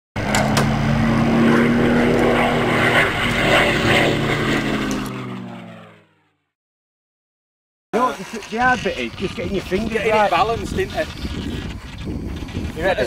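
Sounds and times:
propeller aircraft engine: 0.2 - 6.6.

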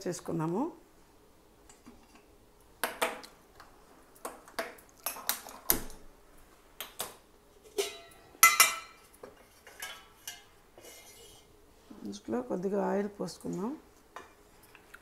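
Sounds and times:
pans and utensils clinking: 7.6 - 11.5.

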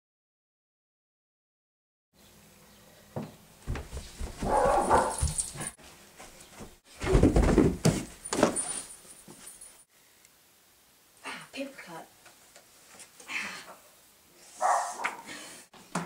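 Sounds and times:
heavy thuds: 3.7 - 5.8, 6.6 - 8.8
high yelping cries: 4.5 - 5.4.

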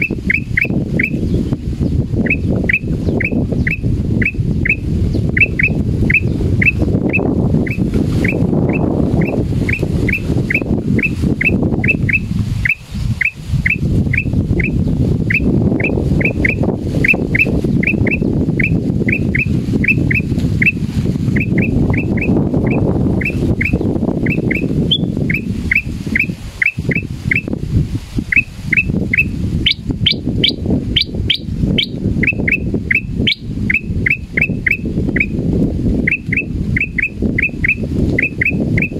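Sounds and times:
wind on microphone: 0.0 - 38.9
bird whistling sharp notes: 21.4 - 27.5.

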